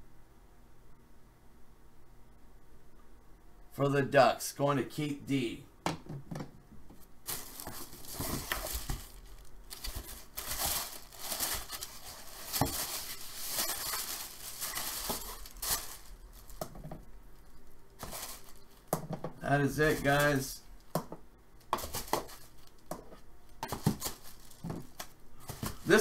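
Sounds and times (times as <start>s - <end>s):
tissue paper crumpling: 7.2s - 16.6s, 18.0s - 18.8s, 23.8s - 26.0s.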